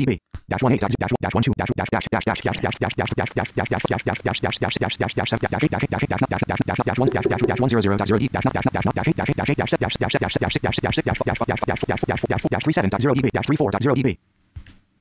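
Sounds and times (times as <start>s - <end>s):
synthetic screen reader speech: 7.0s - 7.8s.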